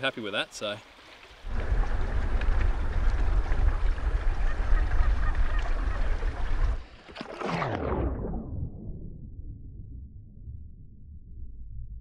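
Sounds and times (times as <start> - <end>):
wind buffeting microphone: 1.4 - 6.8
sound falling steeply in pitch: 7.4 - 12.0.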